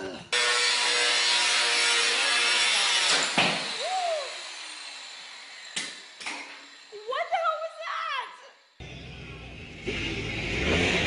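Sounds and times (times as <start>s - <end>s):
angle grinder grinding metal: 0.2s - 7.6s
motor spinning down: 2.2s - 7.4s, 8.6s - 11.0s.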